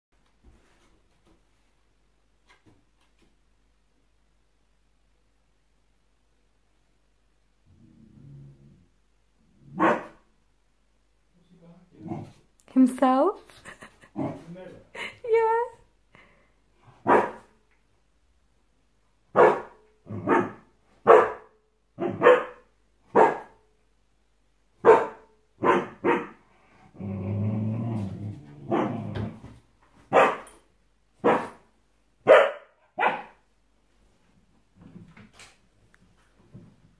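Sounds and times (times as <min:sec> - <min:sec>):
puppy growling: 0:07.6 - 0:09.8, 0:12.0 - 0:12.4, 0:26.2 - 0:29.5
puppy barking: 0:09.8 - 0:10.2, 0:17.0 - 0:17.5, 0:19.3 - 0:23.6, 0:24.8 - 0:26.4, 0:30.1 - 0:30.5, 0:31.2 - 0:31.6, 0:32.2 - 0:33.4.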